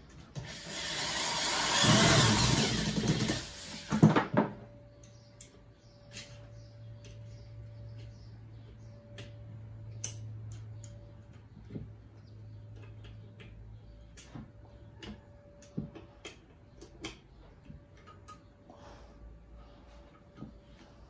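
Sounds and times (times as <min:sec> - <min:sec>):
low steady hum: 0:04.5 - 0:21.0.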